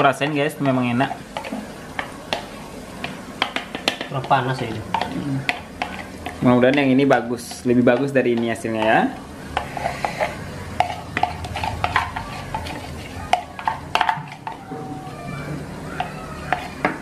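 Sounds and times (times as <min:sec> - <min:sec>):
metal spoon scraping plastic bowl: 0:09.6 - 0:14.6.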